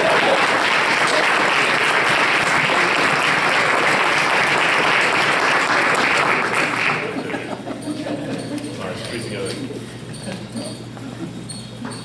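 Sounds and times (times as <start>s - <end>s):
audience applause: 0.0s - 7.6s.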